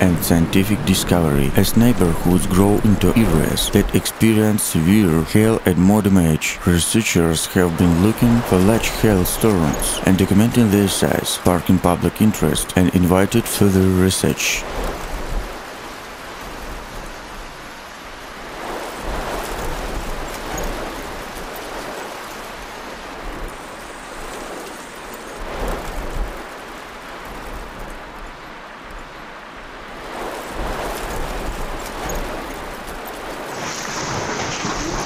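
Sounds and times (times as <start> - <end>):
hail and heavy rain pelting: 29.9 - 35.0.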